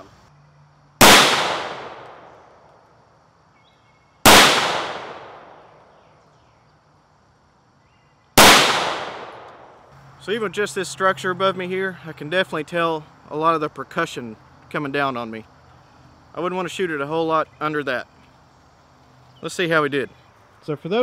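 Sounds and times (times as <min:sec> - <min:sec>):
rifle shots: 0:01.0 - 0:02.6, 0:04.2 - 0:05.8, 0:08.4 - 0:09.8.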